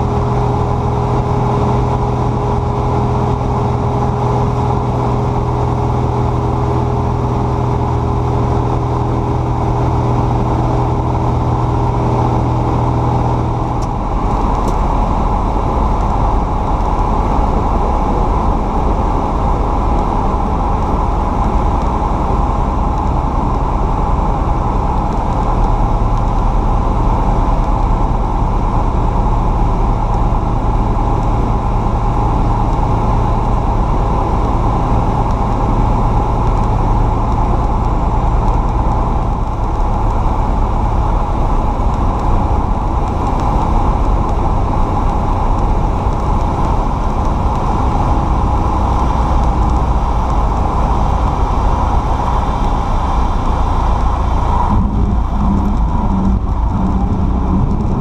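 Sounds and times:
propeller aircraft engine droning: 0.0s - 58.0s
airflow noise: 39.0s - 58.0s.

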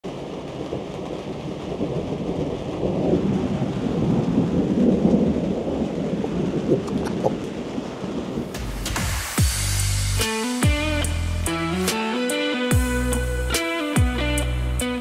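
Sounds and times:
thunder rumbling: 0.0s - 11.0s
steady rain: 0.0s - 15.0s.

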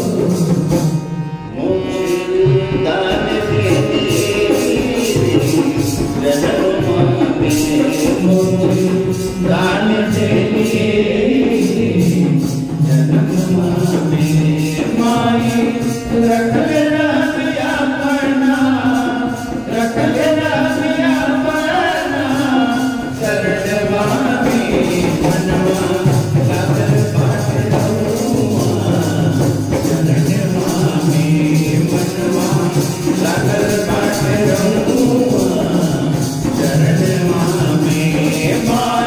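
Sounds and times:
devotional singing: 0.0s - 39.0s
steady percussion beat: 0.0s - 39.0s.

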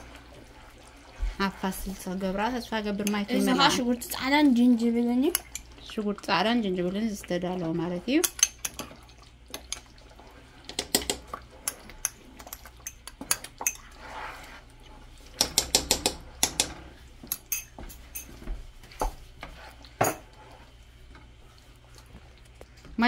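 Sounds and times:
utensils clinking against dishes: 15.4s - 18.4s, 20.0s - 20.3s.

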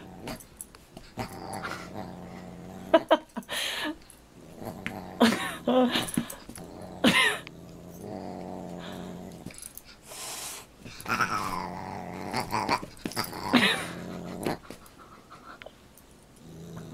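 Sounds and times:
animal growling: 1.2s - 3.1s, 4.4s - 5.7s, 6.6s - 9.6s, 11.0s - 14.7s, 16.4s - 16.9s.

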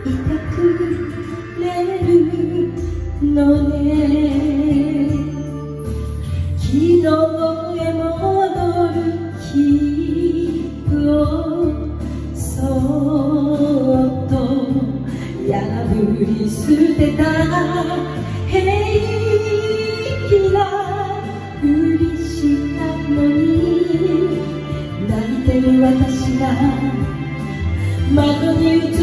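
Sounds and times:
karaoke backing track: 0.0s - 29.0s
woman singing into a microphone: 0.0s - 29.0s.

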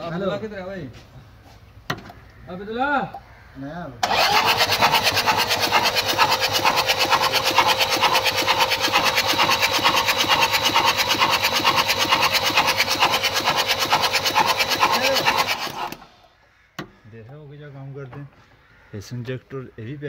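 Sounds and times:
fuel spraying: 4.0s - 16.1s
starter cranking diesel engine: 4.0s - 16.2s.

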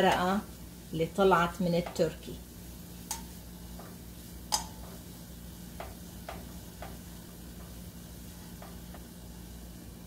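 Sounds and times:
wooden spoon knocking on saucepan: 1.8s - 2.2s, 3.1s - 5.1s, 5.7s - 7.9s, 8.5s - 9.1s.

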